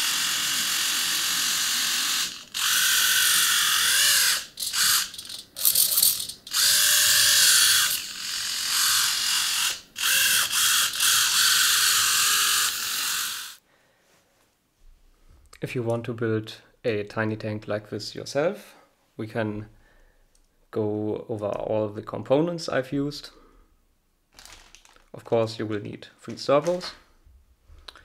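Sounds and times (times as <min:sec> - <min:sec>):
servo motor geared whine: 0:00.0 - 0:13.6.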